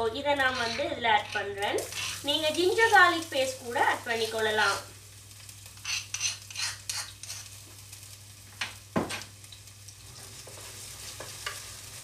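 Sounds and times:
garlic and ginger sizzling in oil: 0.0s - 12.0s.

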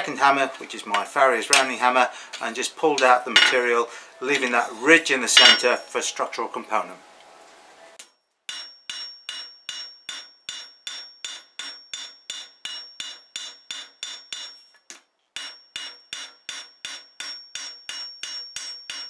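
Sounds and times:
hammer striking steel on anvil: 3.4s - 3.6s, 5.4s - 5.8s, 8.5s - 14.8s, 15.4s - 19.0s.

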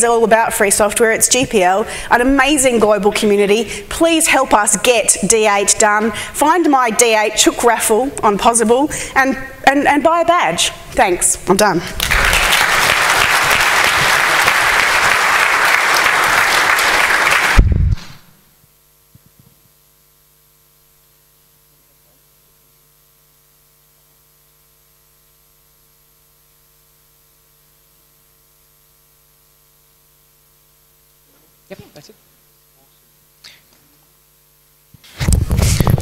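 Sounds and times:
faint electrical hum: 0.0s - 36.0s
audience applause: 12.0s - 17.6s.

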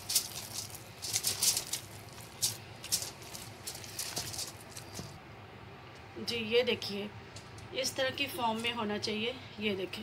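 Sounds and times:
sticky mixture squelching in a bowl: 0.0s - 5.2s.

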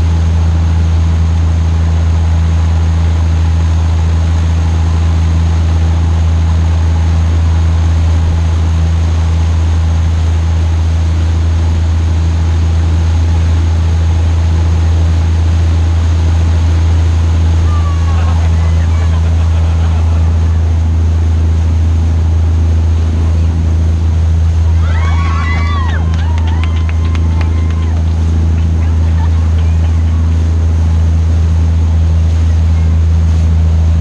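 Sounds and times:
boat engine drone: 0.0s - 34.0s
wake water rushing: 10.3s - 34.0s.

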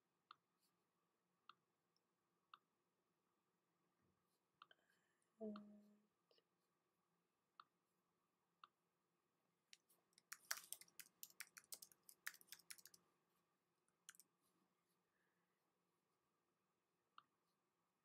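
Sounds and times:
typing on computer keyboard: 10.2s - 13.0s, 14.0s - 14.2s.

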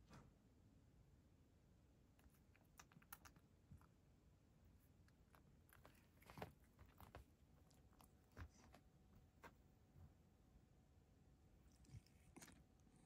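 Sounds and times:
cat chewing dry kibble: 2.1s - 4.1s, 4.7s - 9.9s, 11.7s - 13.0s.

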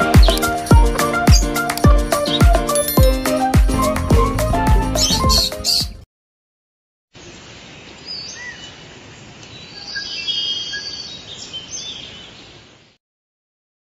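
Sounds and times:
birds chirping: 0.0s - 6.0s, 7.7s - 12.6s.

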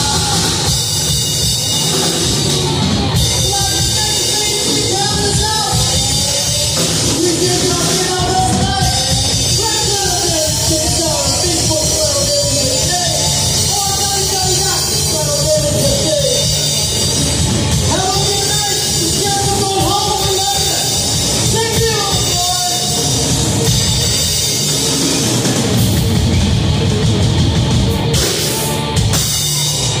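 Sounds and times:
man singing: 0.0s - 0.9s, 3.3s - 16.6s
bass guitar: 0.0s - 30.0s
drum kit: 0.0s - 30.0s
electric guitar: 0.0s - 30.0s.

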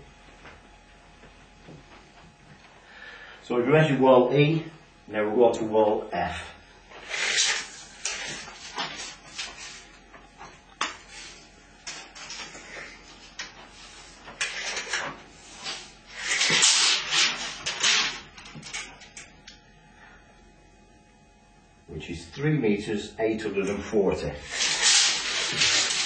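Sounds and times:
measuring tape sliding: 7.0s - 9.9s, 13.3s - 18.2s, 24.4s - 26.0s.

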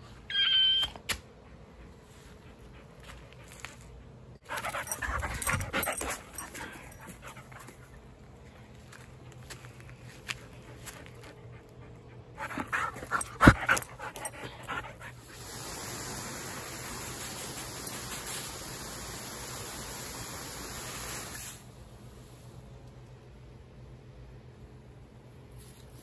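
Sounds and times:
dog panting: 4.5s - 8.0s, 10.6s - 15.3s
garden hose spraying mist: 13.0s - 22.8s.

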